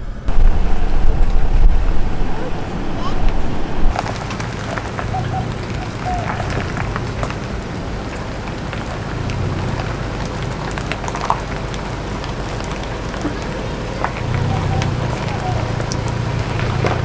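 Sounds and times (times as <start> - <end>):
truck engine rumble: 0.0 - 17.0
tyres crunching on gravel: 0.3 - 17.0.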